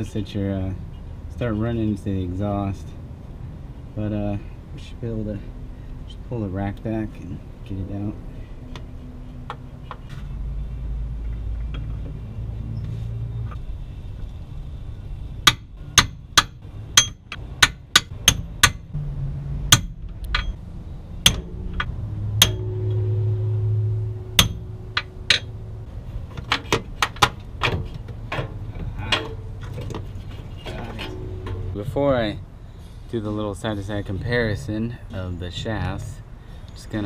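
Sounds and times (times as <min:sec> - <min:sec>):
hammer tapping on metal: 0:15.5 - 0:18.9, 0:21.2 - 0:23.1, 0:24.4 - 0:25.5.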